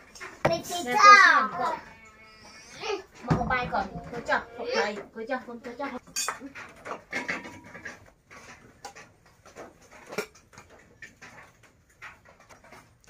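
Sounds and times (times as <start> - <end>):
pots and utensils clinking: 3.2 - 13.0.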